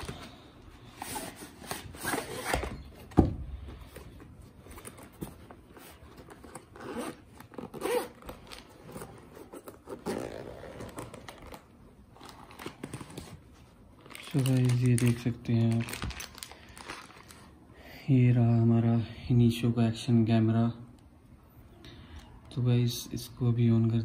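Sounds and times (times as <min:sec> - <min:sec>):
zipper pulled open: 0:06.6 - 0:11.6.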